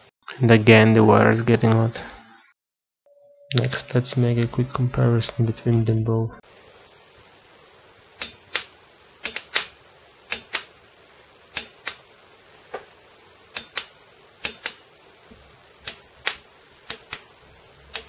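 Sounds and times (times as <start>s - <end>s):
solenoids clicking: 8.2s - 10.8s, 11.5s - 12.1s, 13.5s - 14.8s, 15.8s - 17.3s.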